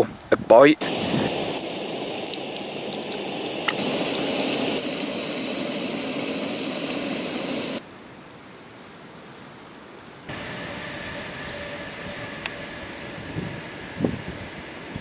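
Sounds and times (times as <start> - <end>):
kettle hissing: 0.8 - 7.8.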